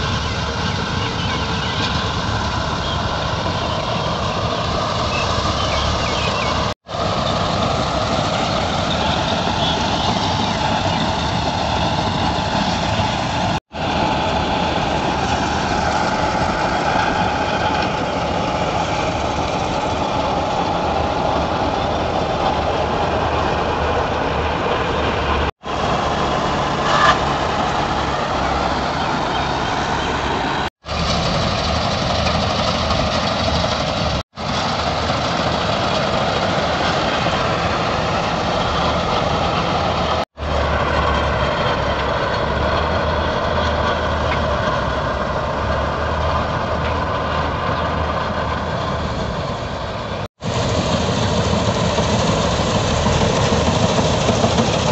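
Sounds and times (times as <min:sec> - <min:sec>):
tractor diesel engine drone: 0:00.0 - 0:54.9.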